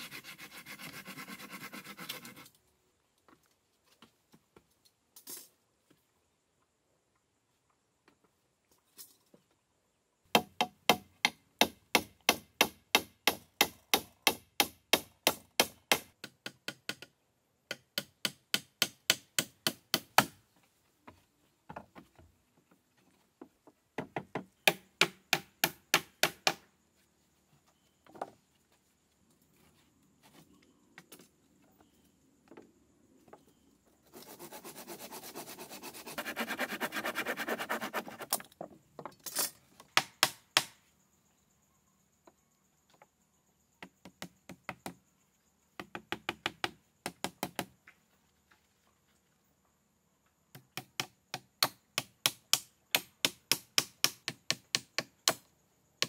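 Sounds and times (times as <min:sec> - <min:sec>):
hand tool striking wood: 0:24.0 - 0:26.6, 0:40.0 - 0:40.8, 0:50.6 - 0:55.4.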